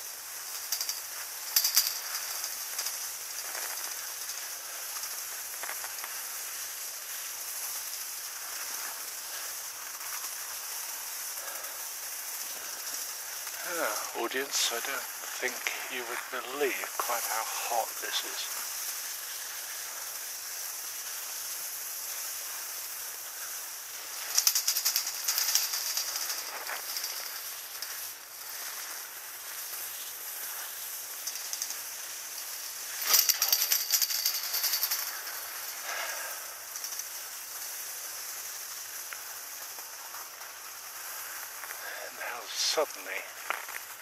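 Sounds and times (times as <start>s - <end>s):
skis hissing over snow: 0.0s - 44.0s
loud rattling chatter: 13.6s - 18.5s.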